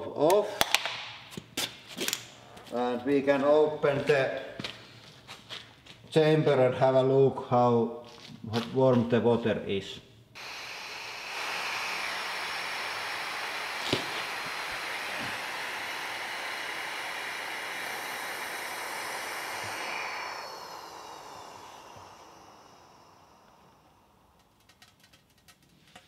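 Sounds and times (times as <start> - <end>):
air hissing into vacuum chamber: 10.4 - 24.8.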